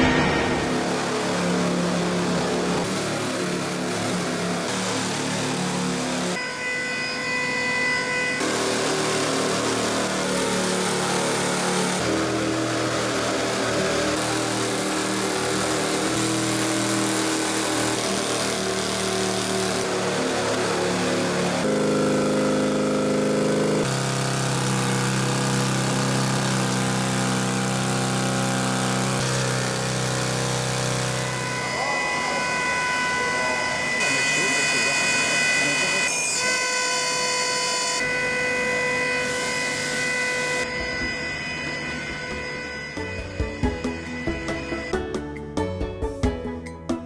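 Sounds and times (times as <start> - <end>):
drilling rig droning: 0.0 - 45.2.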